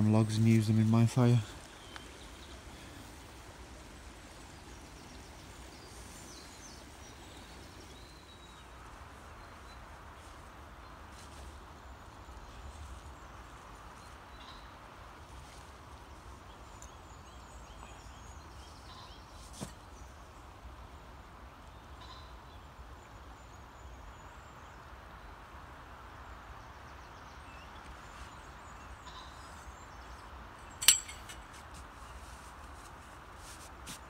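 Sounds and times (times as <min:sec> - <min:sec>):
river flowing: 0:00.0 - 0:12.3
small birds chirping: 0:00.0 - 0:24.9.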